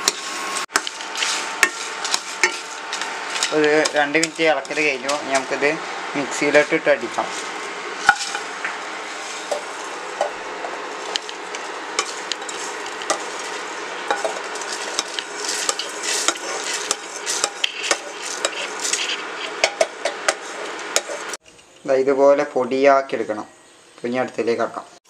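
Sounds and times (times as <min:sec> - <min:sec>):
wooden spatula scraping a pan: 0:00.1 - 0:08.5, 0:10.6 - 0:21.4.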